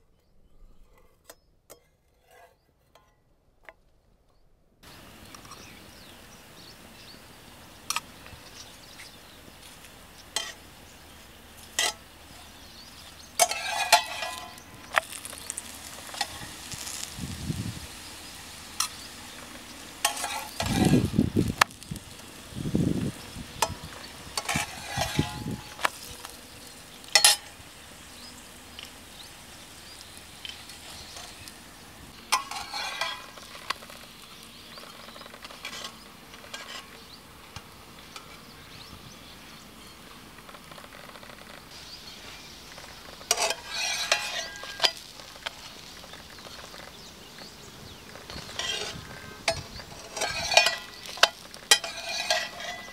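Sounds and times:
bread sizzling in a pan: 0:04.9 - 0:36.8, 0:40.6 - 0:52.9
metal spatula scraping pan: 0:10.4 - 0:10.6, 0:11.7 - 0:17.2, 0:17.9 - 0:22.5, 0:23.6 - 0:27.6, 0:32.2 - 0:34.0, 0:43.2 - 0:45.1, 0:48.2 - 0:52.9.

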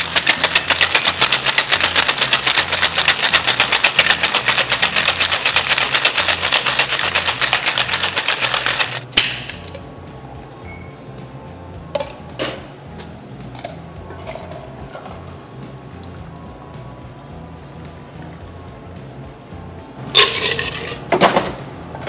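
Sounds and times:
ice rattling in cocktail shaker: 0:00.0 - 0:09.0, 0:20.2 - 0:21.1.

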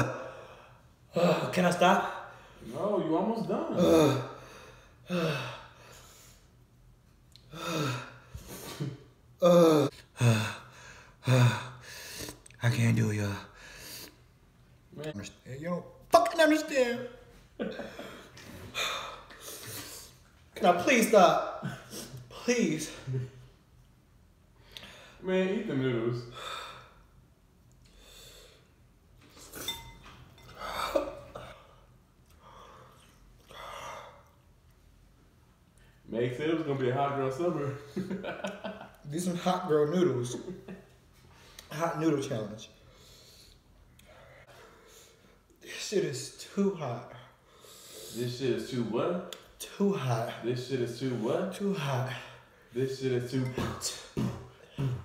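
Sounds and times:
man gasping and groaning: 0:03.7 - 0:05.8, 0:07.4 - 0:08.8, 0:09.4 - 0:12.4
man crying out in pain: 0:09.4 - 0:10.6
metal fork clinking on glass bowl: 0:29.6 - 0:30.5.

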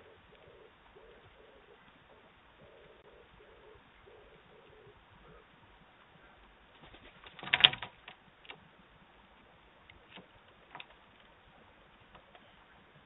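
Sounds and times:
bird claws scratching and tapping: 0:06.8 - 0:08.6, 0:09.9 - 0:11.3.

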